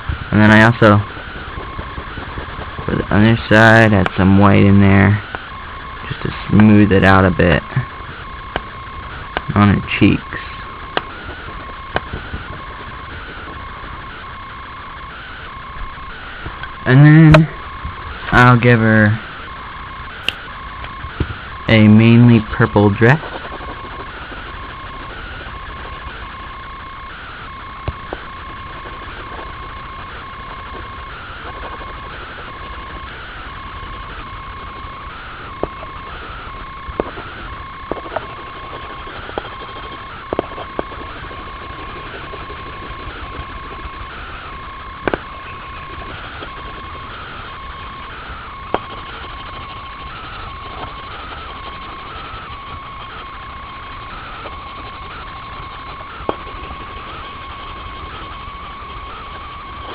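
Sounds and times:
pencil scratching on paper: 37.9 - 44.1, 45.3 - 47.0, 48.8 - 53.3, 53.9 - 59.9.

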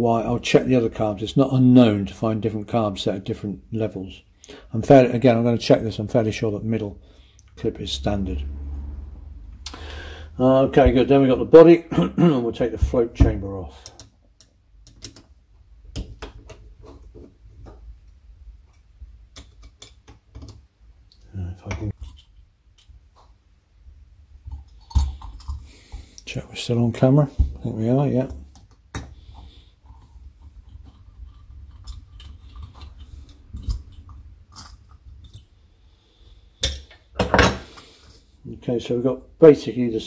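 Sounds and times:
small metallic clicks and taps: 13.8 - 15.3, 18.7 - 23.0.

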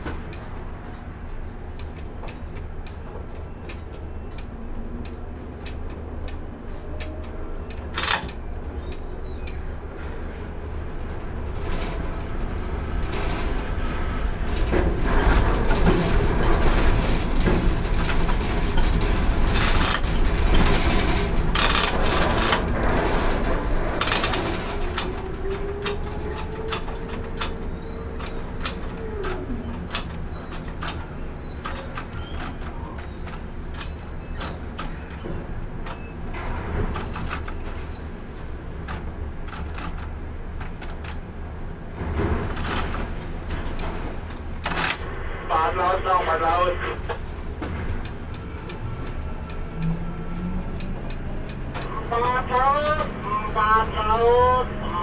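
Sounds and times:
crane machinery low hum: 32.2 - 55.0.

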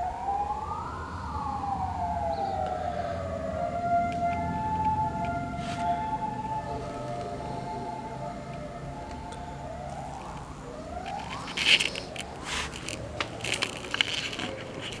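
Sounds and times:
siren: 0.0 - 15.0
crackling and rubbing noise: 4.1 - 15.0.

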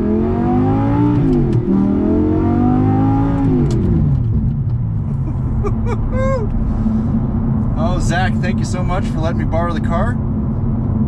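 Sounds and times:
car engine accelerating: 0.0 - 11.0.

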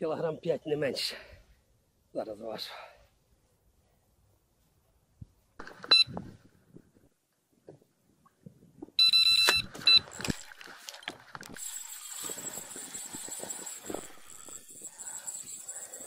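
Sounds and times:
electronic scale beeping: 5.9 - 6.2, 9.0 - 10.2
rustling and handling noises: 9.6 - 14.6.

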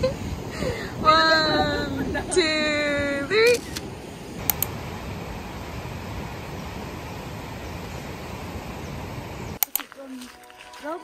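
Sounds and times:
rough ocean surf: 0.0 - 9.6
wind rushing: 0.0 - 9.6
sharp clicks: 3.5 - 4.8, 9.6 - 10.0.

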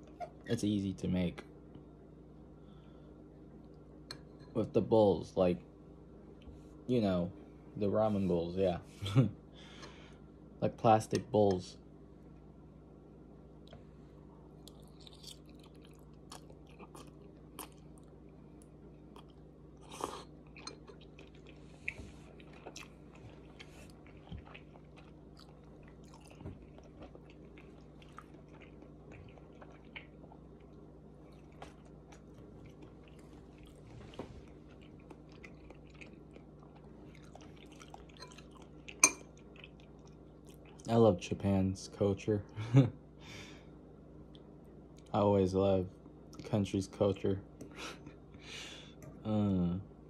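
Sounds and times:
person chewing noodles: 14.5 - 40.9.

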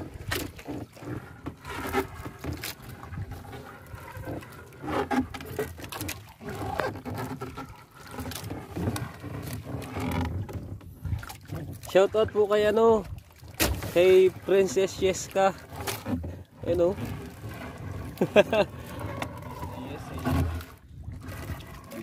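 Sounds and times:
water sloshing and dripping: 0.0 - 22.0
knocks against wooden hull: 13.1 - 14.4.

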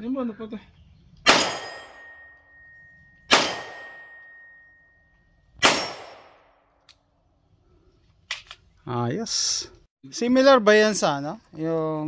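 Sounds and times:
gunshots: 1.2 - 2.2, 3.3 - 4.2, 5.6 - 6.5
high ringing tone: 1.7 - 5.4.

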